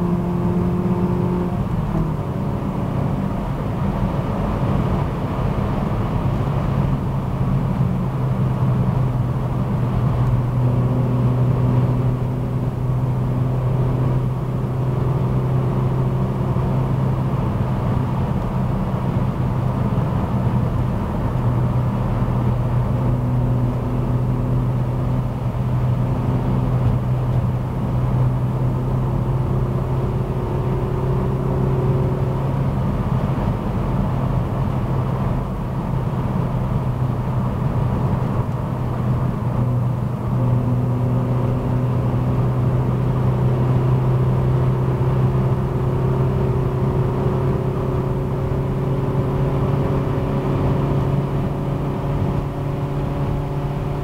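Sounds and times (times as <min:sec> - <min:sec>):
car engine drone: 0:00.0 - 0:54.0.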